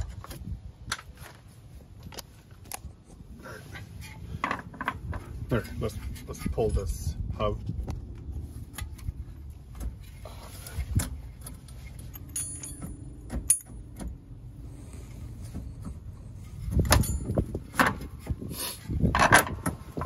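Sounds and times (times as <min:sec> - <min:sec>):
suspension parts clunking: 0:00.0 - 0:07.1, 0:07.7 - 0:20.0
metal parts knocking and clinking: 0:10.9 - 0:14.2, 0:16.6 - 0:18.2, 0:19.1 - 0:20.0.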